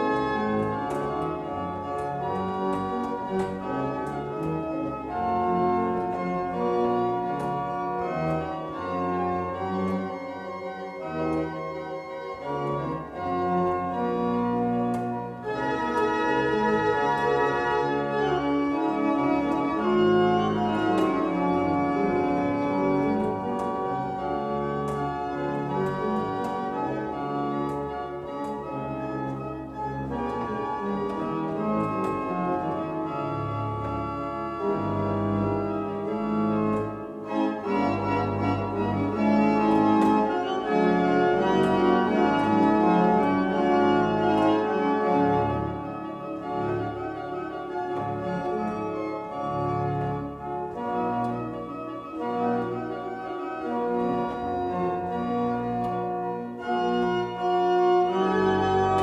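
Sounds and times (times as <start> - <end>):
church pipe organ playing: 0.0 - 59.0.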